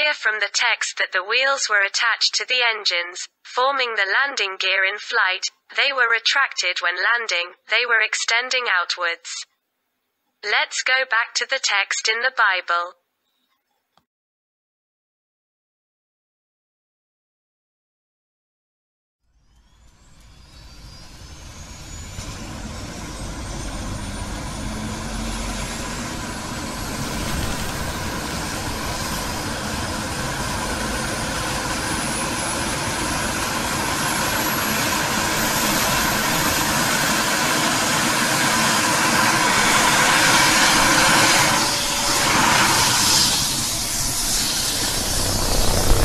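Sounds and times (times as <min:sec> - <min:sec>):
aircraft engine whine: 0:19.5 - 0:46.0
rushing noise: 0:20.6 - 0:46.0.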